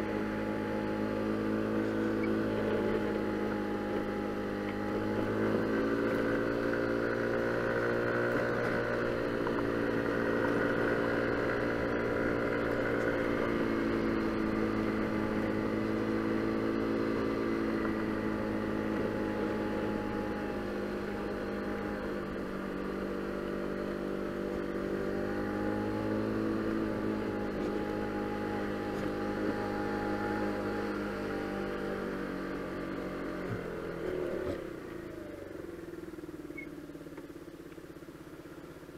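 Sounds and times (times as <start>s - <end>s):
motor scooter engine running: 0.0s - 38.9s.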